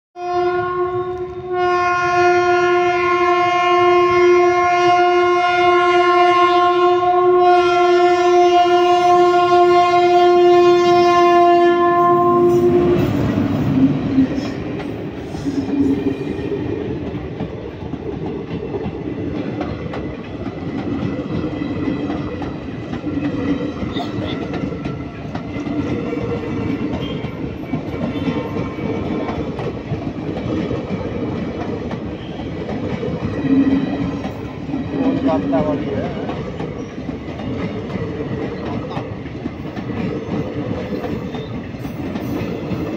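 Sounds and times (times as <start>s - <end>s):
train horn blast: 0.2s - 14.6s
train coaches rumbling and clattering: 8.3s - 42.9s.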